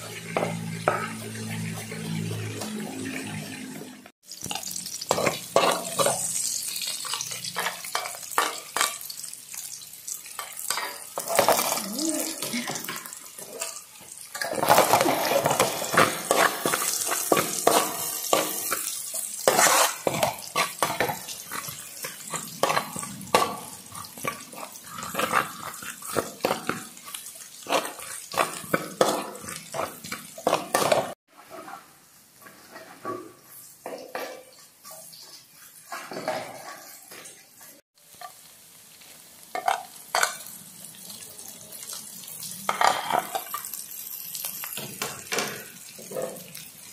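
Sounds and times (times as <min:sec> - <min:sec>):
metal spatula scraping wok: 0:00.0 - 0:03.8, 0:13.5 - 0:34.0
aromatics sizzling in oil: 0:00.0 - 0:46.9.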